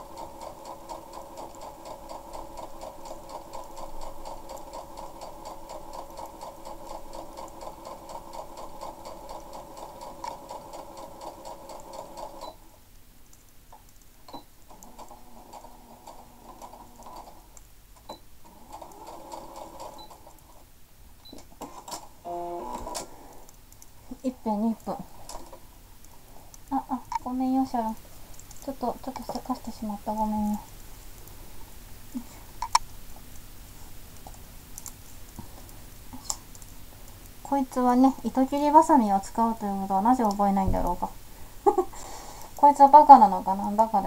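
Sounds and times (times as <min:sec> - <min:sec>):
sewing machine clicks: 0:00.0 - 0:12.6, 0:14.7 - 0:20.5
sewing machine stitching: 0:00.0 - 0:12.6, 0:14.7 - 0:17.5, 0:18.4 - 0:20.6.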